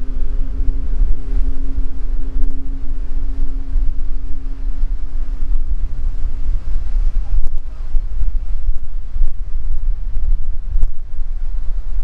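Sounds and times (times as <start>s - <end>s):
steady low hum: 0.0s - 12.0s
wind buffeting microphone: 0.0s - 12.0s.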